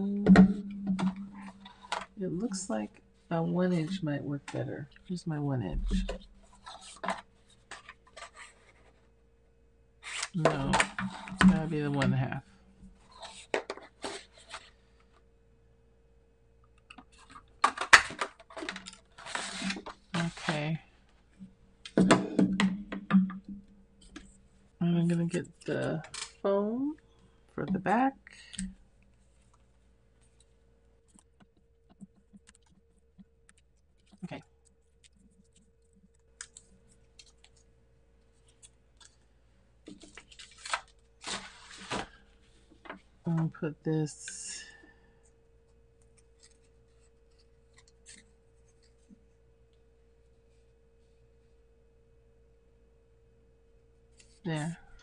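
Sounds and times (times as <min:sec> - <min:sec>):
paper rustling and crinkling: 0:06.5 - 0:09.1, 0:17.1 - 0:20.5, 0:39.9 - 0:42.5
plastic sheet crinkling: 0:39.9 - 0:42.3.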